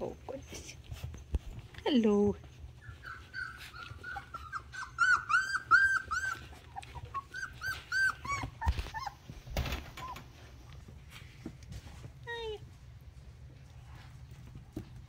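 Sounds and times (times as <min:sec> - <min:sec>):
rustling: 0:00.0 - 0:15.0
puppies whining with high squeaks: 0:02.5 - 0:10.4.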